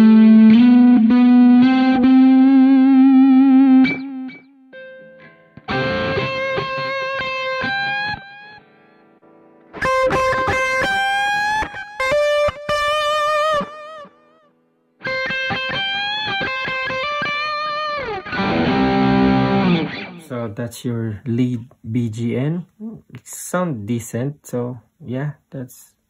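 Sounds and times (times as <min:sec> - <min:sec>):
distorted guitar chord: 0:00.0 - 0:08.7, 0:15.0 - 0:20.2
distorted electric guitar lead: 0:00.0 - 0:14.4, 0:15.0 - 0:20.3.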